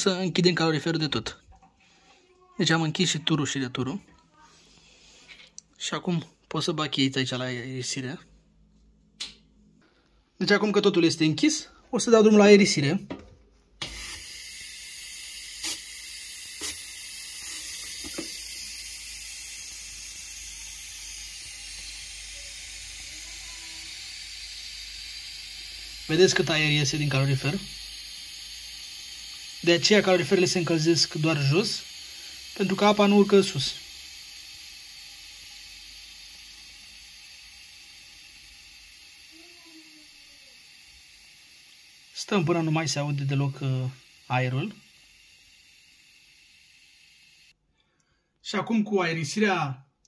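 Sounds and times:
air hissing from radiator valve: 13.8s - 47.6s.

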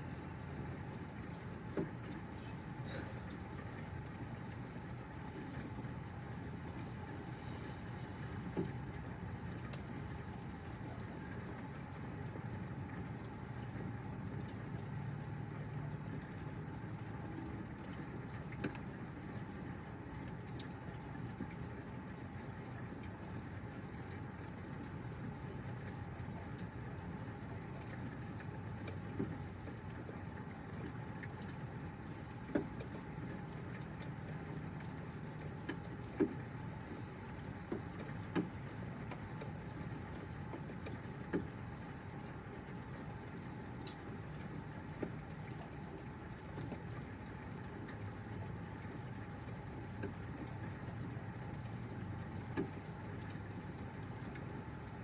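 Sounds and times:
steady rain falling: 0.0s - 55.0s
sharp drip taps: 7.8s - 10.0s, 32.4s - 41.5s.

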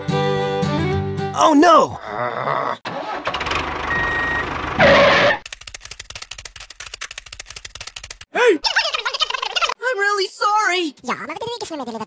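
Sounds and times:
short loud blast: 4.8s - 5.4s
rapid even clicking: 5.4s - 8.3s.

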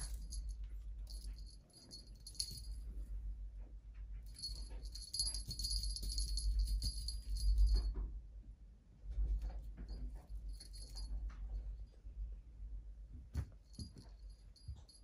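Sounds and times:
small bell jingling: 0.0s - 3.0s, 4.2s - 8.0s, 9.9s - 11.4s, 13.6s - 15.0s.

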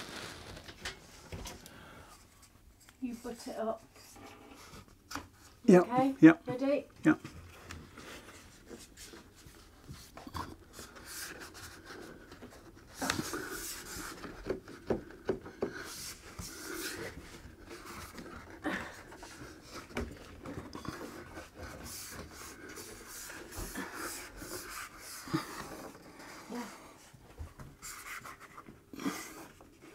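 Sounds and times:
board knocking and rubbing on wall: 8.5s - 26.4s.

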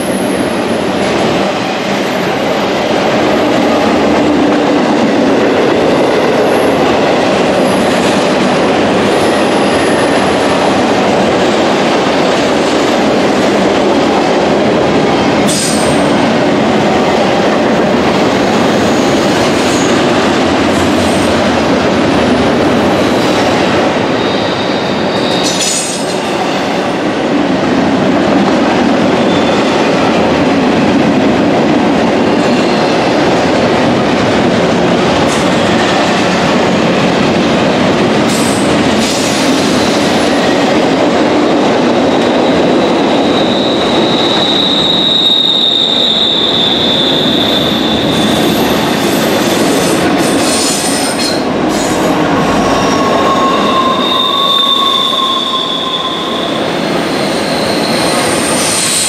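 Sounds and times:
train wheels rumbling on rail: 0.0s - 59.0s
high wheel squeals: 42.9s - 48.7s, 51.8s - 59.0s.

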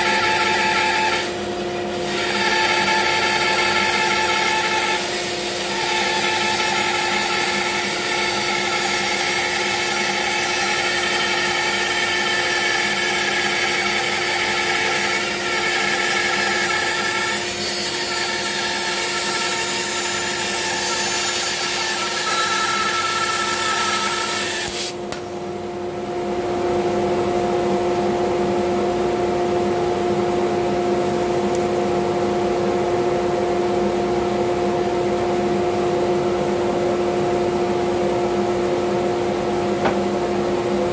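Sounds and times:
bandsaw cutting wood: 0.0s - 1.4s, 2.0s - 25.0s.

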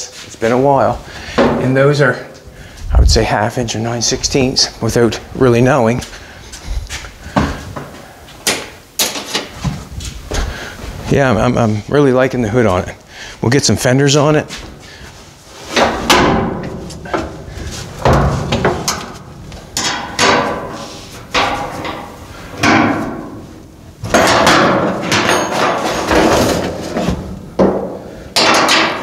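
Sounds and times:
tools clanking on sheet metal: 8.5s - 9.6s, 15.7s - 17.4s, 18.0s - 23.4s, 24.0s - 29.0s.

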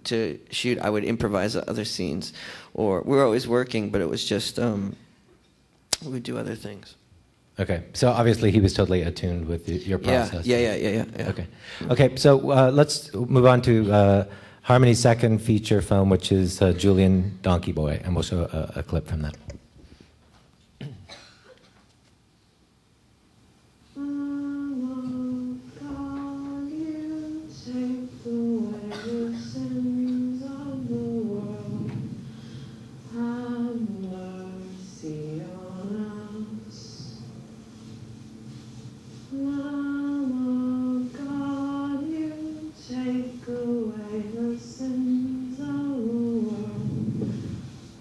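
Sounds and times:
woman singing slow melody: 23.8s - 37.4s, 39.2s - 47.9s.

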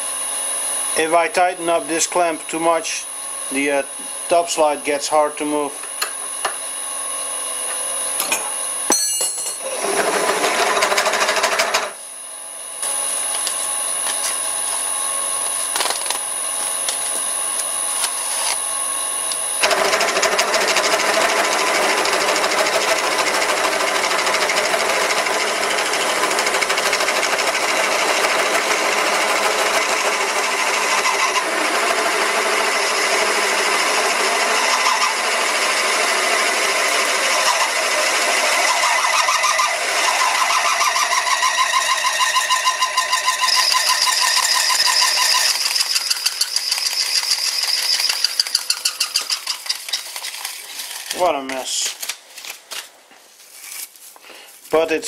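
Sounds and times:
lathe running: 9.4s - 12.0s, 12.8s - 50.4s
drill cutting into steel: 9.5s - 12.1s, 15.3s - 50.0s.

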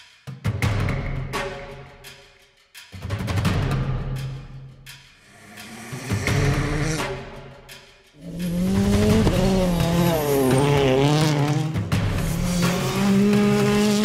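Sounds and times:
rally car engine revving: 5.4s - 7.3s, 8.2s - 14.0s.

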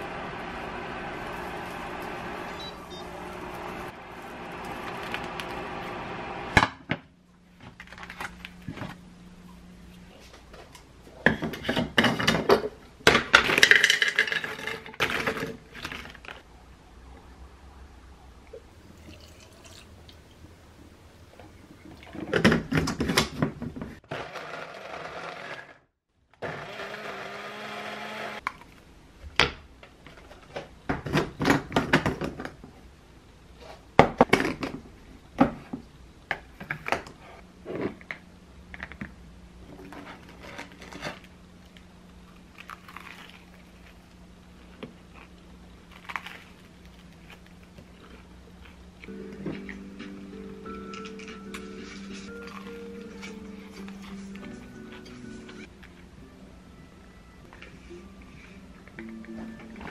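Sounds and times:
small blender motor running: 0.0s - 6.6s, 24.1s - 25.8s, 26.4s - 28.4s.

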